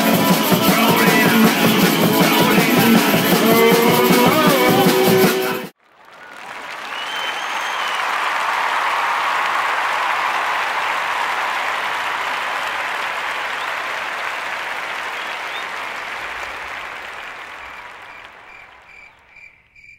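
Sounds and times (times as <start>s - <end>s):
crowd applauding: 0.0s - 19.6s
crickets chirping: 17.7s - 19.9s.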